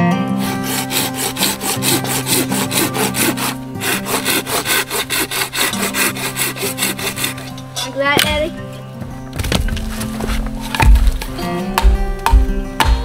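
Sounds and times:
saw cutting through wood: 0:00.3 - 0:07.9.

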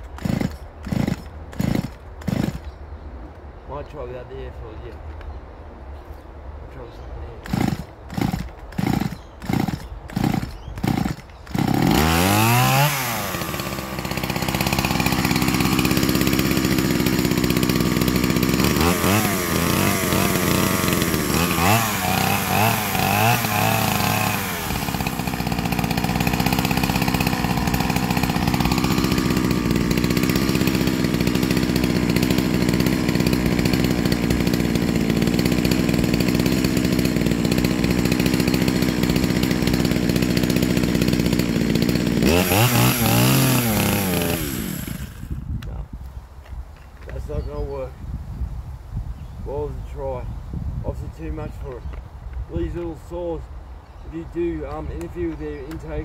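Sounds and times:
chainsaw revving and idling: 0:00.0 - 0:02.8, 0:07.2 - 0:45.9, 0:54.1 - 0:56.0
chainsaw throttle blips: 0:00.0 - 0:02.8, 0:07.4 - 0:45.7
starter cord pulls: 0:07.4 - 0:12.3.

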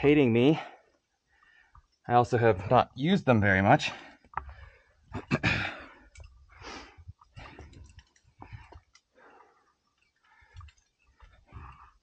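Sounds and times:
person breathing hard: 0:04.4 - 0:12.0.

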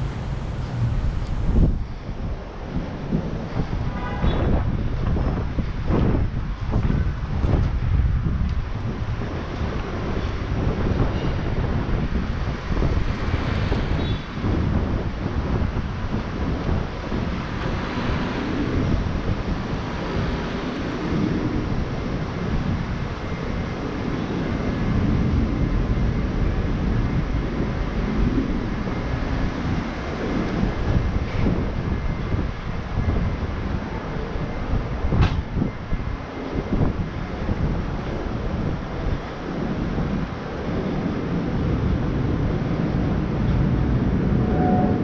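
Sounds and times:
wind buffeting microphone: 0:00.0 - 0:45.0.

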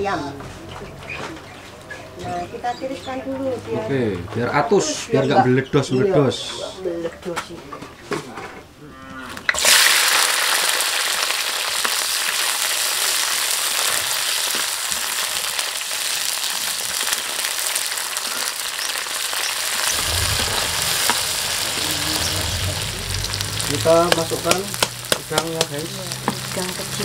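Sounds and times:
vegetables sizzling in hot oil: 0:09.5 - 0:27.0.

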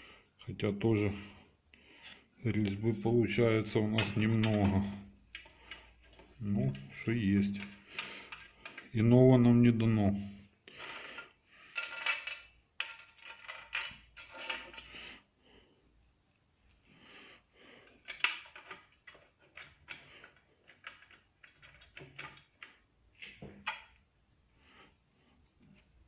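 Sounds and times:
washers and bolts clinking: 0:03.6 - 0:09.0, 0:11.7 - 0:15.0, 0:18.0 - 0:24.0.

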